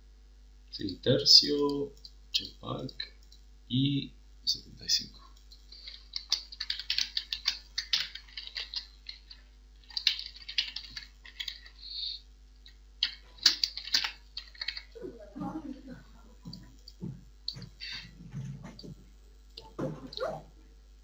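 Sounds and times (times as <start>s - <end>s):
typing on a computer keyboard: 5.4s - 11.7s, 13.0s - 14.9s.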